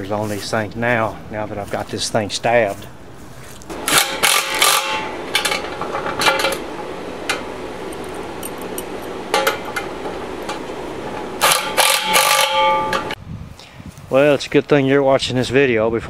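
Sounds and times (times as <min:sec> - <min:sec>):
steady background hiss: 0:00.0 - 0:15.8
metal washers and nuts clinking: 0:03.7 - 0:13.2.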